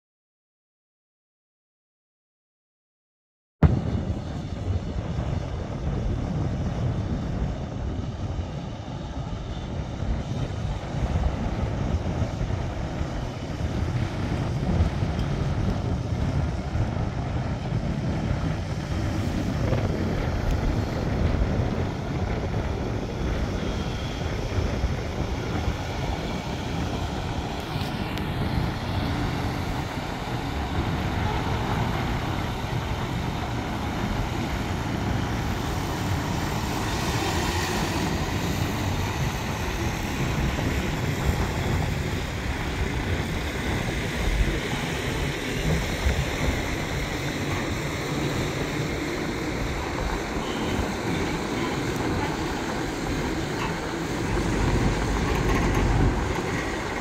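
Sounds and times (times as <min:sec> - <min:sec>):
diesel truck engine rumbling: 0:03.6 - 0:57.0.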